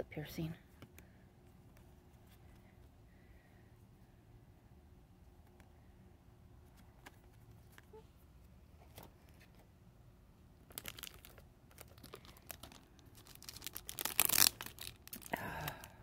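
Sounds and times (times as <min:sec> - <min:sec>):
plastic packaging crinkling: 0:10.6 - 0:15.9.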